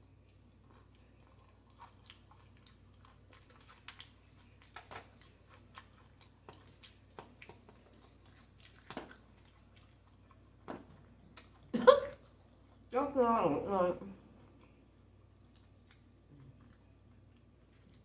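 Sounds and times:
mouth chewing crunchy chips: 0.0 - 12.6.

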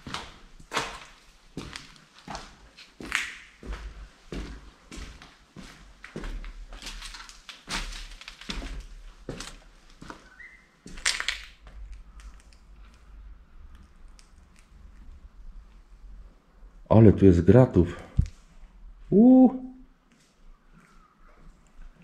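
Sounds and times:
footsteps crunching on debris: 0.0 - 11.8.

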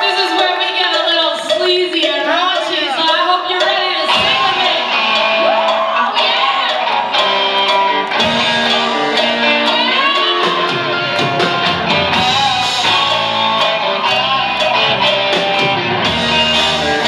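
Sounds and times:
drum beat: 0.0 - 17.0
electric guitars: 3.6 - 17.0
bass guitar: 4.1 - 17.0.

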